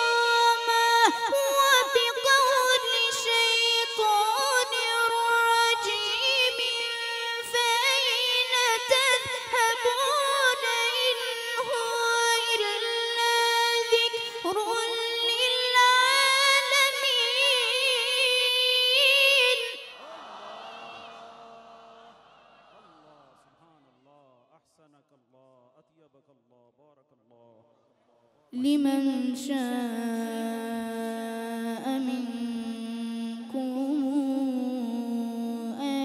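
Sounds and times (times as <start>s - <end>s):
boy reciting melodically: 0.0s - 19.9s, 28.6s - 36.0s.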